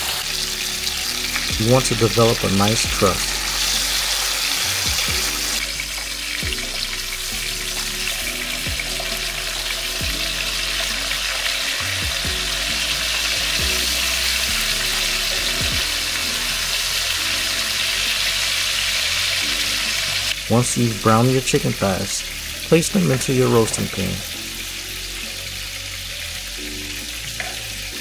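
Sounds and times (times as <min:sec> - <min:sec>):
chicken sizzling in oil: 0:00.0 - 0:28.0.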